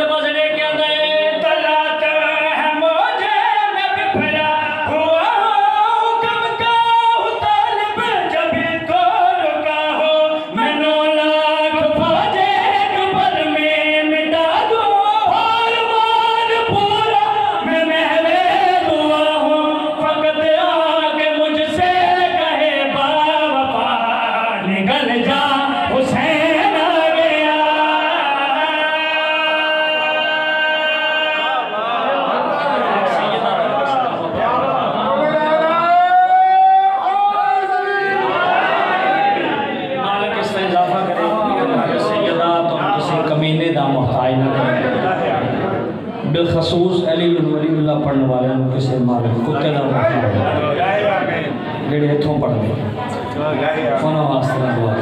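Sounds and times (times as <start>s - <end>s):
men singing through pa: 0.0s - 32.0s.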